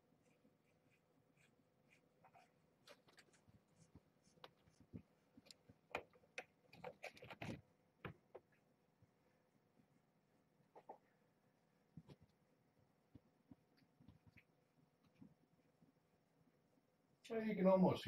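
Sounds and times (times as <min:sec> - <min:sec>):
faint rustles and clicks: 0:00.2 - 0:09.2.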